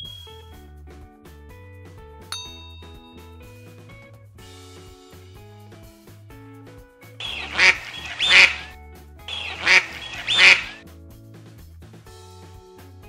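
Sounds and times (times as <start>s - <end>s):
background music: 1.2s - 11.1s
duck quacking: 7.2s - 8.7s, 9.3s - 10.8s.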